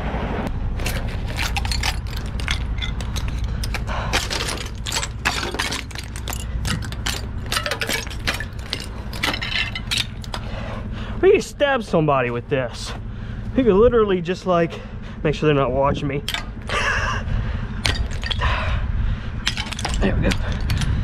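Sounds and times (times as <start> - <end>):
low steady hum: 0.0 - 21.0
ice cracking and clinking: 0.8 - 10.4, 17.8 - 18.5, 19.4 - 20.9.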